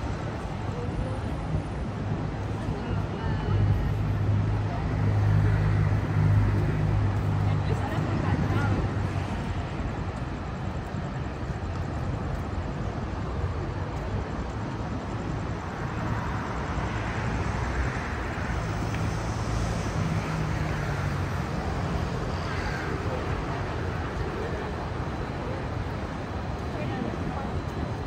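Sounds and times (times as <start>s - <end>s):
rumble of passing vehicles: 0.0s - 28.0s.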